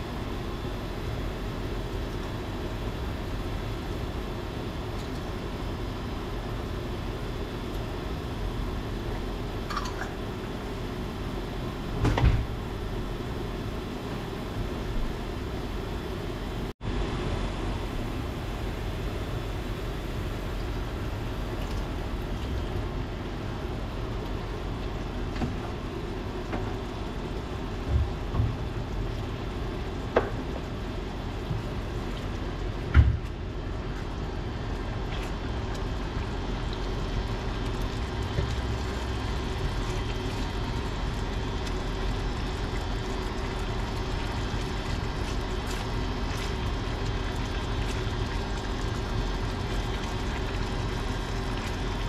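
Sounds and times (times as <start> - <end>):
sauce simmering in a skillet: 18.3 - 52.0.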